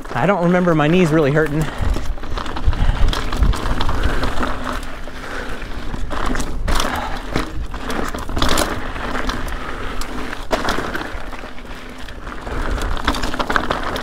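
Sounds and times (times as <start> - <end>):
bike knocking and rattling: 0.0 - 14.0
bike tyres on dirt and stones: 0.0 - 14.0.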